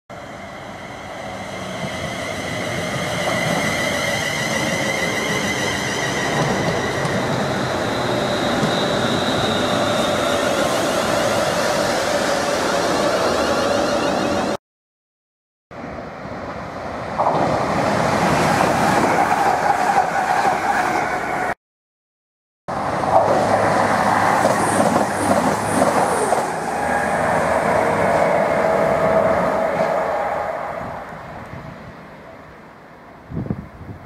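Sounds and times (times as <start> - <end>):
high wheel chirps: 0.2 - 14.6.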